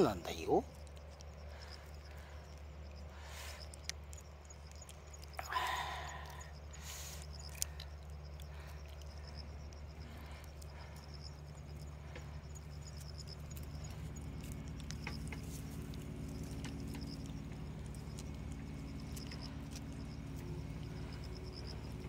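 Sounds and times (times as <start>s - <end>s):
low hum: 0.0s - 22.0s
low steady rumble: 0.0s - 22.0s
cat tongue licking clicks: 0.7s - 5.4s.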